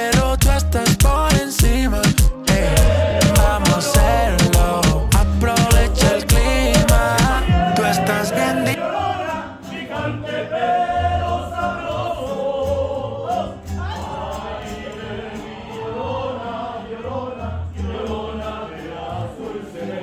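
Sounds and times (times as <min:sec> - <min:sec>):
guitars: 0:00.0 - 0:20.0
voices singing in chorus: 0:00.0 - 0:20.0
slow bass notes: 0:00.2 - 0:08.8.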